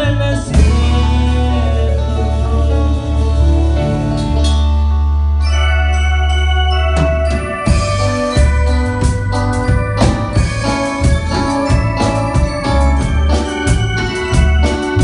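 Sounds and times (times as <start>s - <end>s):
drum kit steady beat: 0.0s - 2.4s, 6.9s - 15.0s
bass guitar line: 0.0s - 15.0s
electric organ chords: 0.0s - 15.0s.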